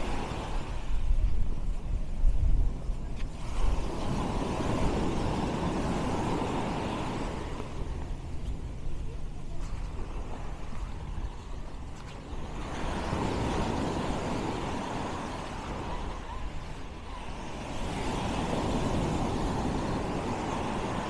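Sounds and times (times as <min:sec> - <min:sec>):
waves washing up beach: 0:00.0 - 0:21.0
steady low rumble: 0:00.5 - 0:14.2.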